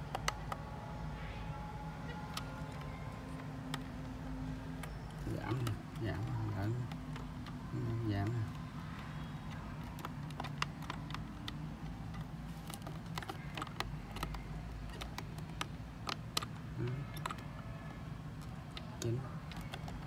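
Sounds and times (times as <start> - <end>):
plastic buttons clicking: 0.0 - 0.7, 2.1 - 20.0
low steady hum: 0.0 - 20.0.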